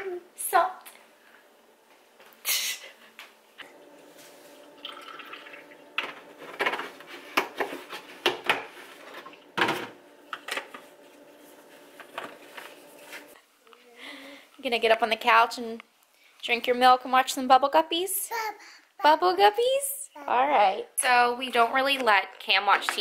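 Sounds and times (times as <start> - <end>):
milk pouring into plastic cup: 3.7 - 6.4.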